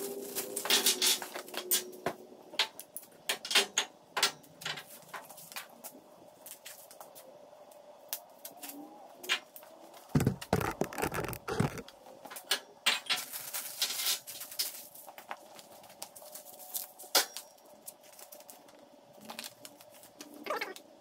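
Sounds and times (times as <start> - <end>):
plastic bags and paper rustling: 0.0 - 1.9, 13.0 - 20.8
heavier thumps: 10.2 - 11.8
small parts knocking on steel table: 10.2 - 11.8.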